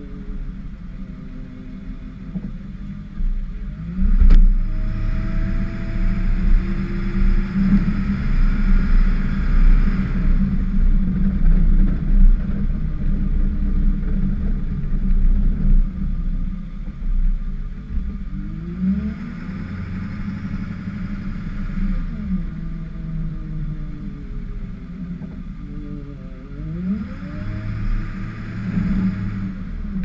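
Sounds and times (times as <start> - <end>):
truck engine revving: 18.2 - 24.9, 26.0 - 30.0.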